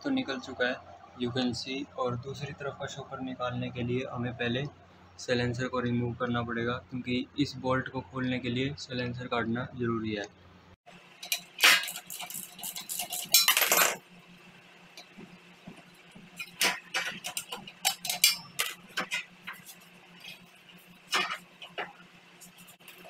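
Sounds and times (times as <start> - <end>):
metal clanks and rattles: 11.2 - 14.0, 15.0 - 22.0
wrench clinking on metal bolts: 11.2 - 14.0, 16.4 - 19.4.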